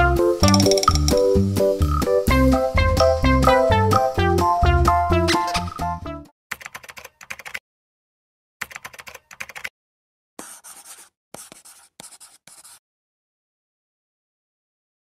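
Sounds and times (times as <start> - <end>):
background music: 0.0 - 6.3
pen scribbling sound effect: 10.4 - 12.8.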